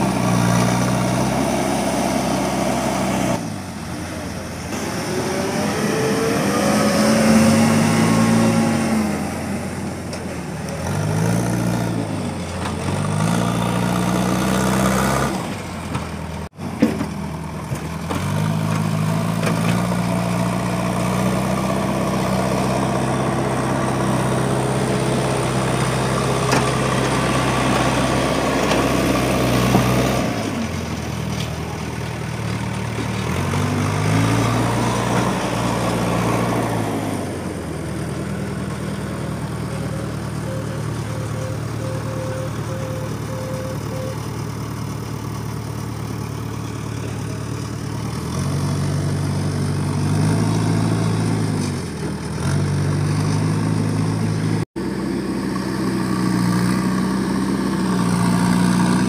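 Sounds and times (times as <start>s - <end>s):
diesel lorry engine revving: 0.0s - 59.0s.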